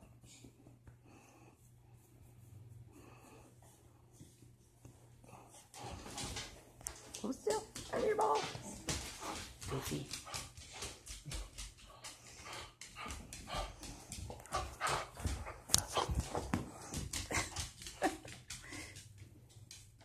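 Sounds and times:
dog paws clicking on hardwood floor: 4.1s - 20.0s.

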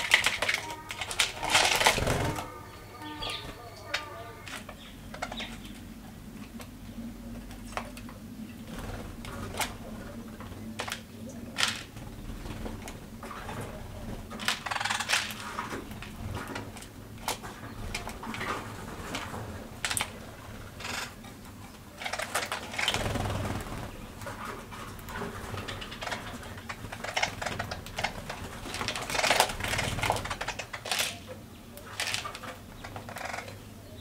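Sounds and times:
rustling flurries: 0.0s - 4.8s, 8.6s - 31.2s.

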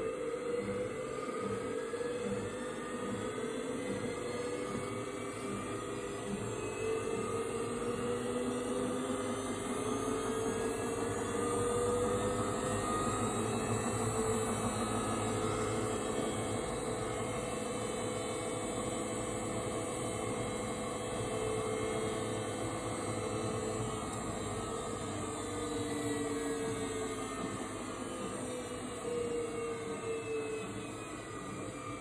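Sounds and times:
washing machine motor whine: 0.0s - 32.0s.

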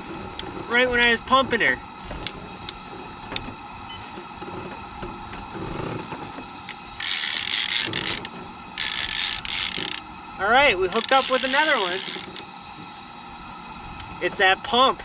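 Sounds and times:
loud hiss-like noise bursts: 5.6s - 15.0s
fishing reel clicking and whirring: 6.6s - 13.0s.

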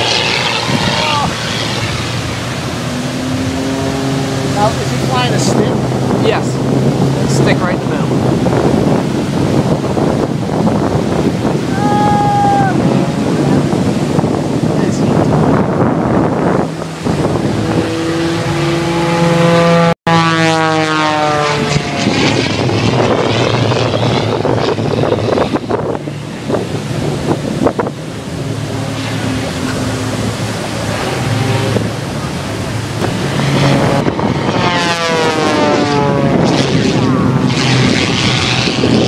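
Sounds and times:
propeller plane passing overhead: 0.0s - 39.0s
surf: 0.0s - 39.0s
wind: 0.0s - 39.0s.

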